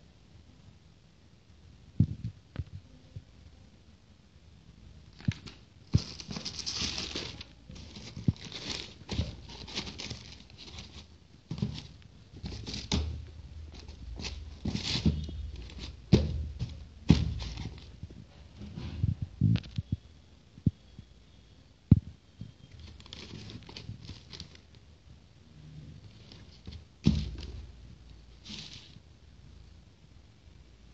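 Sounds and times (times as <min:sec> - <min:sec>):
paper and box rustling: 0:05.2 - 0:18.0, 0:22.7 - 0:24.7, 0:26.0 - 0:27.7, 0:28.3 - 0:29.0.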